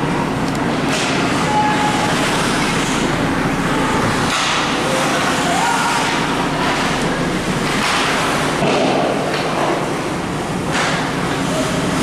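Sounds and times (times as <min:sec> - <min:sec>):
arena noise: 0:00.4 - 0:08.1.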